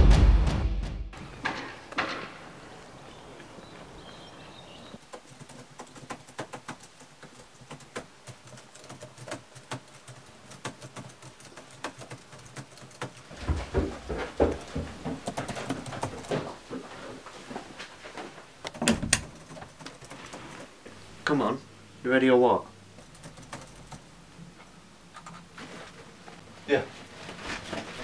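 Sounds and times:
laptop keyboard typing: 0:05.0 - 0:13.4, 0:14.5 - 0:16.3, 0:18.7 - 0:20.7, 0:23.0 - 0:24.1.

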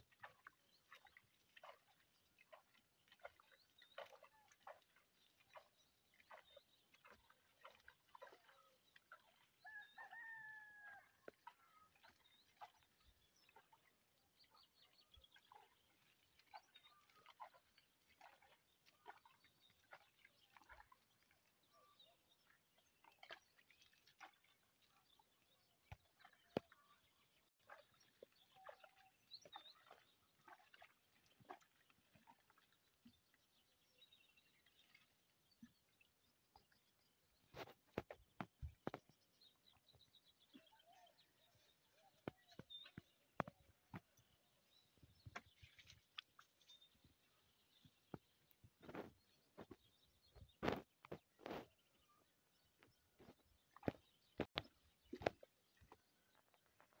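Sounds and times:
faint rooster crowing: 0:09.6 - 0:11.3.

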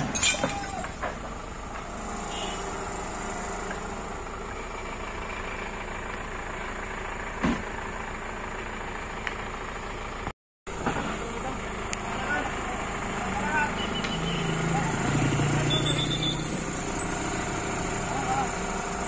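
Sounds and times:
truck diesel engine idling: 0:00.5 - 0:19.0.

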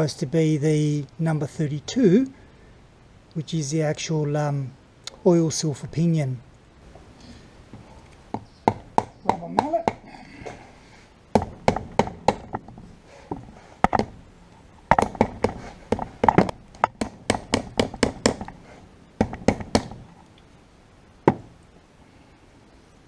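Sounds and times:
hand tool tapping and knocking metal: 0:08.3 - 0:10.6, 0:11.4 - 0:14.2, 0:14.9 - 0:18.6, 0:19.2 - 0:20.0.

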